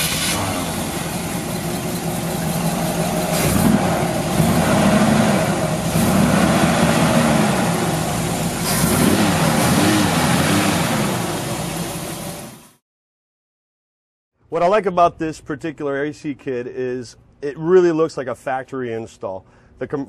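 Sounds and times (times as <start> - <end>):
engine idling and revving: 0.0 - 12.8.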